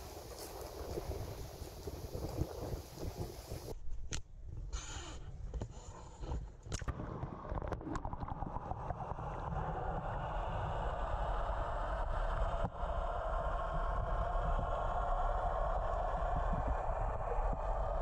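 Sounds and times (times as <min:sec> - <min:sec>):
muffled underwater rush and bubbling: 0:06.8 - 0:18.0.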